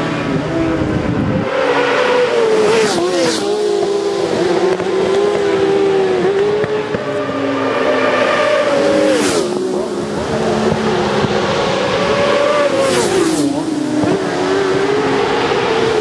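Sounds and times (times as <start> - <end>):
motorcycles passing close: 0.0 - 16.0
racing motorcycles running hard: 0.0 - 16.0.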